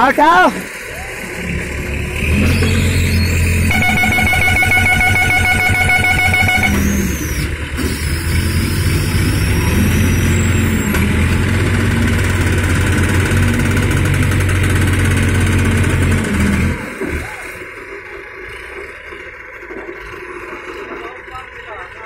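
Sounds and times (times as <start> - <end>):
diesel crane engines running: 0.0 - 22.0
steady horn: 3.7 - 7.2.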